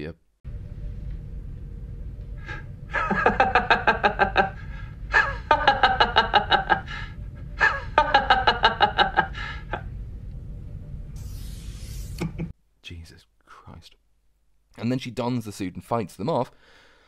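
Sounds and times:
man laughing: 2.9 - 9.9.

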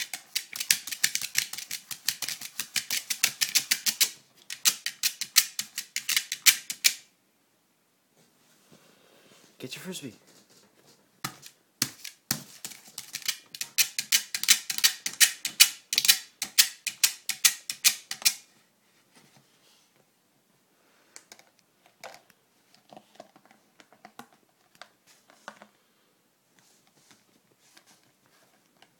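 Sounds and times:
teeth clicking on plastic frisbee: 0.0 - 7.0, 11.3 - 18.4.

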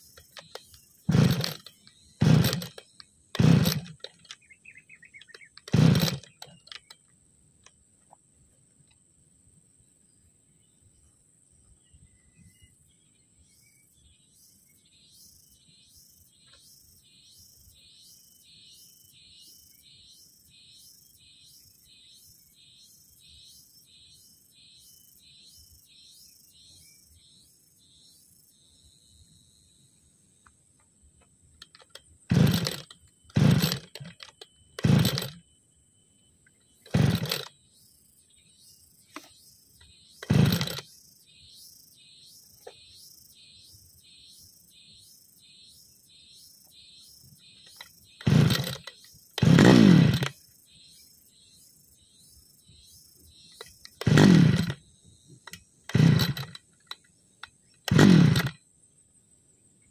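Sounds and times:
recoil starter cord pulls: 0.0 - 7.0, 31.6 - 35.4, 36.8 - 37.6, 40.2 - 41.0, 47.6 - 50.4, 53.5 - 54.8, 55.4 - 58.6
insects chirping: 0.0 - 59.9.

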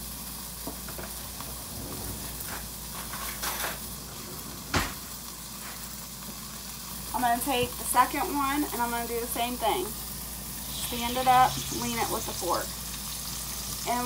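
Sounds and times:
steak sizzling in grease: 0.0 - 14.0.

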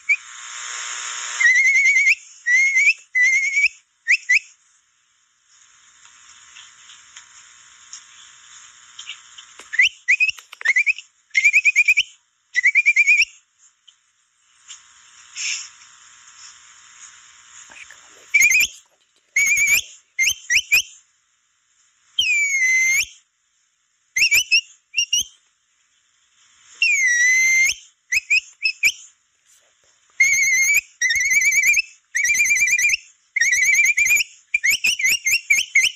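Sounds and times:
faint steady hiss: 0.0 - 35.9
capybara whistled chirps: 1.4 - 4.5, 9.7 - 13.4, 18.3 - 18.8, 19.4 - 20.9, 22.2 - 23.2, 24.2 - 25.4, 26.8 - 29.1, 30.2 - 35.9.

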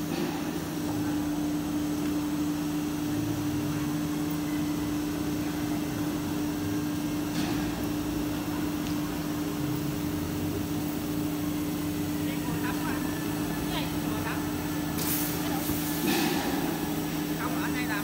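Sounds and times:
cnc router humming: 7.8 - 15.9.

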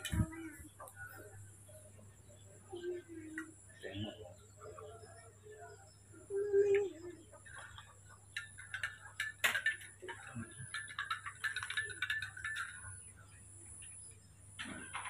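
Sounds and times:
faint high chirping: 0.0 - 15.0
spoon clinking against glass: 8.3 - 13.1.

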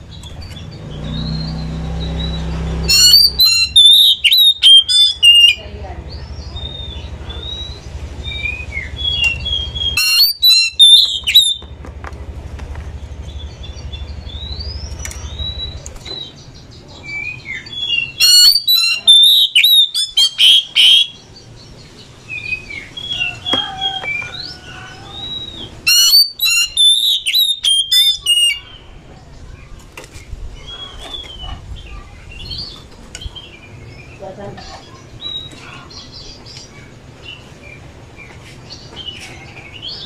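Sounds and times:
bird singing whistled notes: 0.5 - 5.6, 6.2 - 11.6, 17.0 - 28.9
bird harsh chattering: 2.9 - 5.6, 8.9 - 11.6, 18.0 - 21.3, 23.2 - 28.8.

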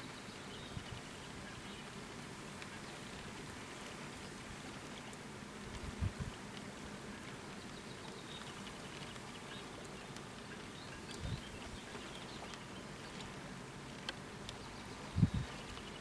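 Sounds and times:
light rain over water: 0.0 - 16.0
wind: 0.0 - 16.0
wind buffeting microphone: 5.7 - 6.4, 10.8 - 12.0, 15.0 - 16.0.

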